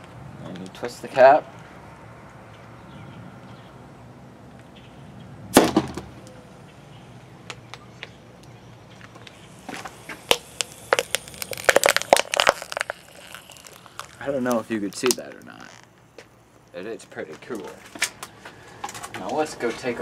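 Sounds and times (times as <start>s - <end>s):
plastic bottle crackling: 9.5s - 16.1s
bottle cap popping off: 9.7s - 14.2s.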